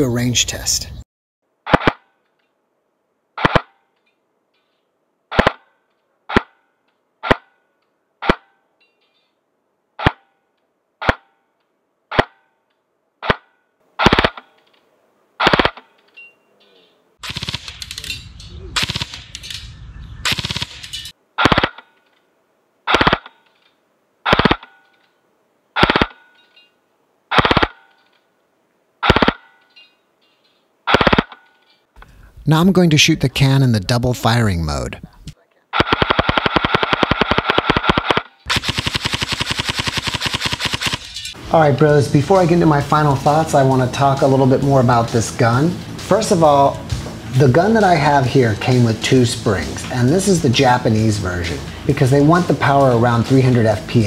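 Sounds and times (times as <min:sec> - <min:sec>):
airsoft gun firing single shots: 0:01.6 - 0:02.1, 0:03.4 - 0:03.8, 0:05.3 - 0:05.7, 0:07.2 - 0:07.5, 0:10.0 - 0:10.3, 0:13.2 - 0:14.5, 0:15.4 - 0:15.9, 0:17.2 - 0:18.0, 0:18.8 - 0:19.4, 0:20.3 - 0:20.8, 0:21.4 - 0:21.9, 0:22.9 - 0:23.4, 0:24.2 - 0:24.7, 0:25.8 - 0:26.2, 0:27.3 - 0:27.9, 0:29.0 - 0:29.5, 0:30.9 - 0:31.4, 0:35.8 - 0:41.1.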